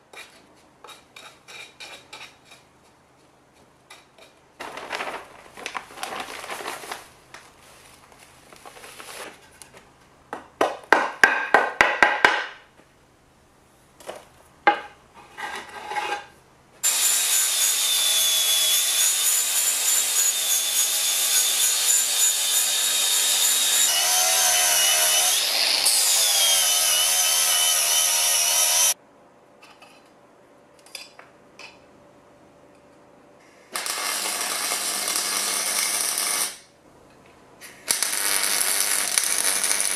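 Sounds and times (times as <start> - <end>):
angle grinder grinding metal: 16.8 - 29.0.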